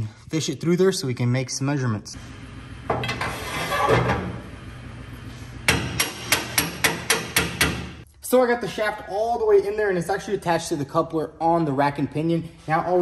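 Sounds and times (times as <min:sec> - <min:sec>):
metal shaft scraping: 0:03.0 - 0:04.2
hammer striking metal: 0:05.7 - 0:08.0.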